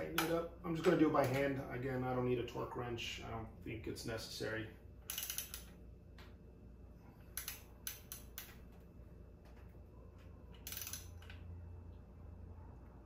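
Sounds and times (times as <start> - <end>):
metallic tool clicks and clinks: 5.1 - 5.7, 10.5 - 11.4.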